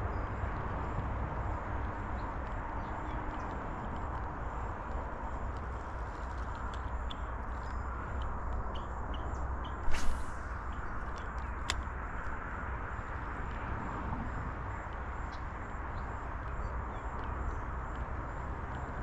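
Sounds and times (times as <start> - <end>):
fishing line swish: 9.8 - 10.7.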